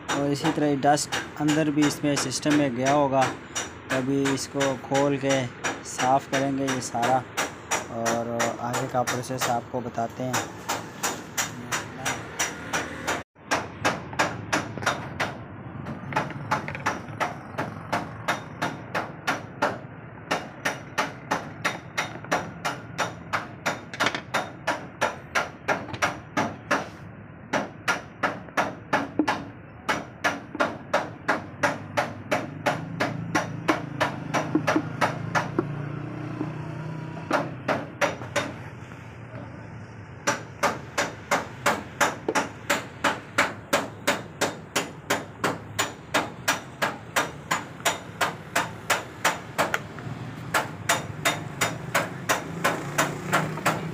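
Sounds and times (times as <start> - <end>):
rhythmic hammering: 0.0 - 38.6, 40.2 - 53.9.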